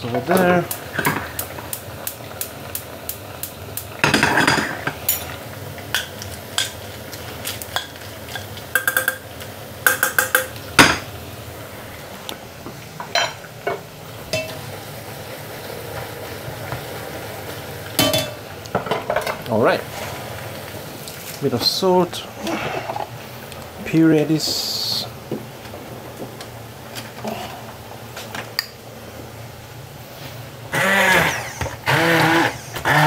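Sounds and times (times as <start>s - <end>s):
frying sizzle: 0.0s - 33.0s
metal utensils clinking on pans: 4.0s - 6.8s, 7.7s - 11.0s, 13.1s - 14.6s, 18.0s - 19.4s.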